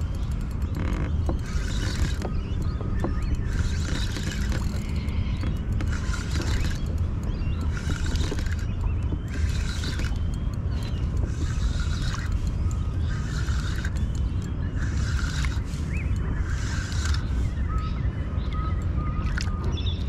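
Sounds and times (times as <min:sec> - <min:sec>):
fishing reel winding: 0:00.0 - 0:18.0
steady low rumble: 0:00.0 - 0:20.0.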